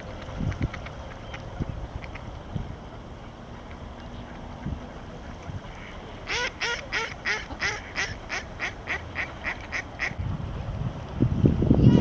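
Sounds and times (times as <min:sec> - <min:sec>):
duck quacking harshly: 0:06.3 - 0:10.1.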